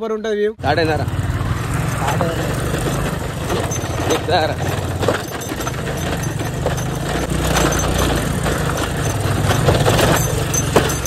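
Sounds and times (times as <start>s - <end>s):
motorcycle engine under load: 0.6s - 11.0s.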